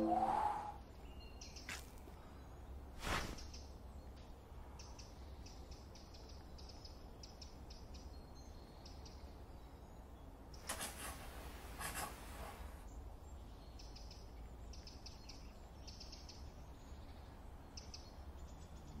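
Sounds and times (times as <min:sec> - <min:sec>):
faint birds chirping: 0:00.0 - 0:19.0
scratchy rubbing rustles: 0:10.6 - 0:12.8.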